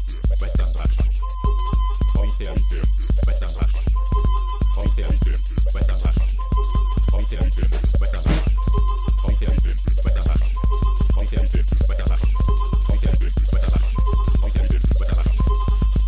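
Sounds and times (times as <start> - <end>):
song with steady drum beat: 0.0 - 16.0.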